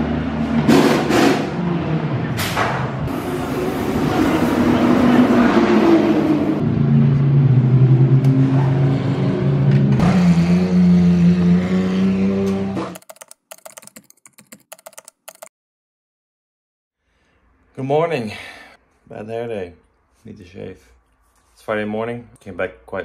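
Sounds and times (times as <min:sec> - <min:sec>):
short irregular clicks: 0:13.0 - 0:15.5.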